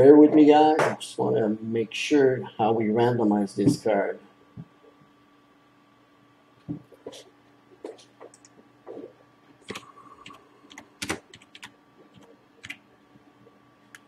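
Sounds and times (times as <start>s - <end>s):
keyboard typing: 7.9s - 12.8s.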